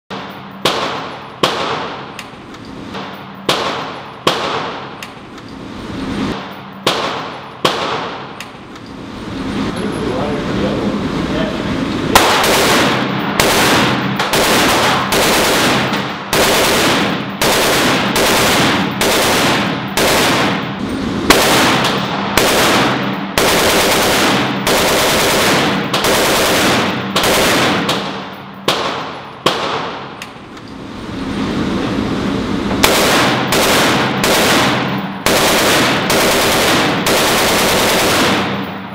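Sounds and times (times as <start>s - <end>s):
rifle firing automatic bursts: 0.1s - 2.2s, 3.0s - 5.0s, 6.8s - 8.4s, 12.1s - 30.2s, 32.8s - 38.8s
single rifle shots: 0.1s - 2.2s, 6.8s - 8.4s, 12.1s - 20.7s, 21.3s - 30.2s, 32.8s - 38.7s.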